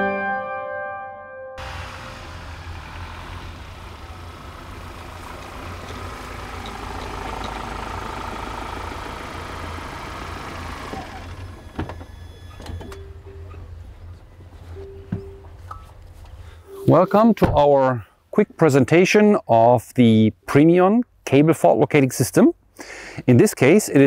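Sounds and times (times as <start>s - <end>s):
pickup truck engine running: 1.6s - 14.6s
tyre and road noise: 1.6s - 17.7s.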